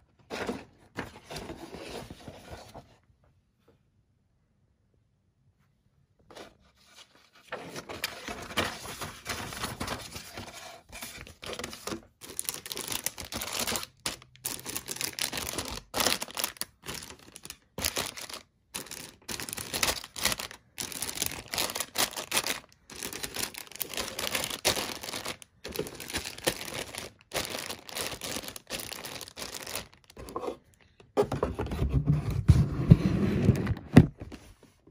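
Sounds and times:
plastic bags crinkling: 11.2 - 30.4.

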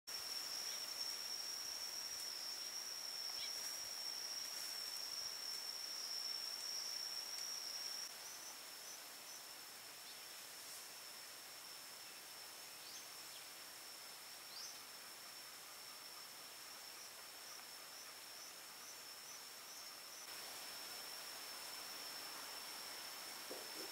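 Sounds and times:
insect trilling: 0.1 - 10.3
faint hiss: 0.1 - 23.9.

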